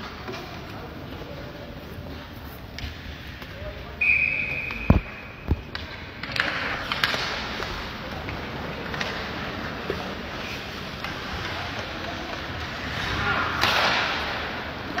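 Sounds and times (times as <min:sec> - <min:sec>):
hockey sticks clacking: 0:00.0 - 0:15.0
high whistle tone: 0:04.0 - 0:05.4
skates scraping ice: 0:05.5 - 0:15.0.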